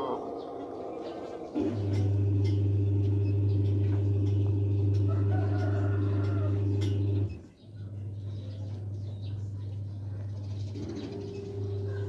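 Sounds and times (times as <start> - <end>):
loud low hum: 0.0 - 12.0
rooster crowing: 5.0 - 6.8.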